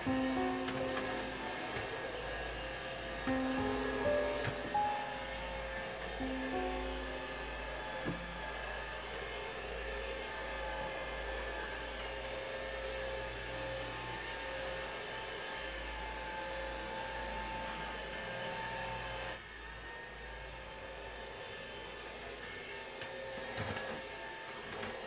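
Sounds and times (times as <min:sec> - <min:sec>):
stick vacuum cleaner running: 0:00.0 - 0:19.3.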